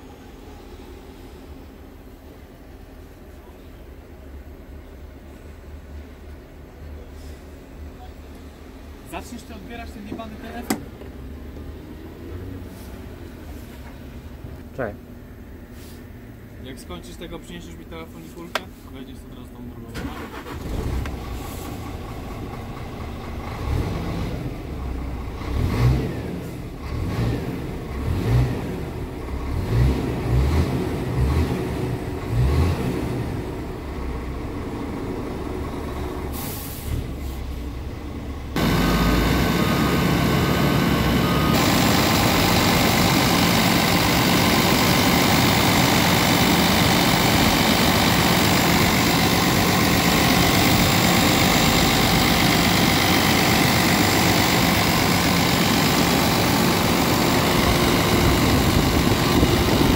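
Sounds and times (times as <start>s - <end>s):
diesel engine idling: 12.8s - 29.6s, 33.0s - 59.9s.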